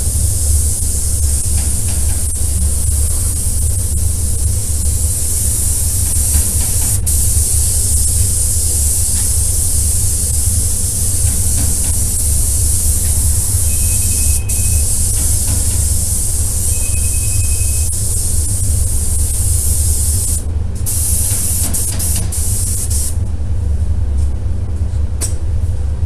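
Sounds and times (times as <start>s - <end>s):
spray gun hissing: 0.0s - 23.2s.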